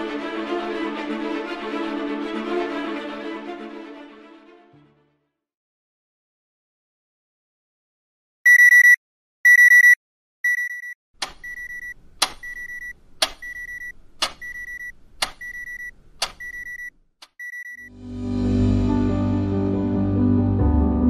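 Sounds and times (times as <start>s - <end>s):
electronic alarm beeping: 8.5s - 17.9s
wall clock ticking: 11.2s - 17.9s.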